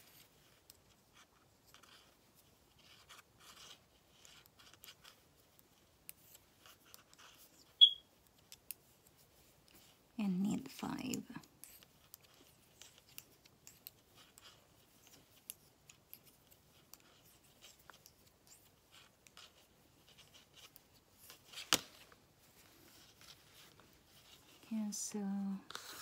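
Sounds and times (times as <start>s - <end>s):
knitting needles clicking: 10.6s - 22.2s.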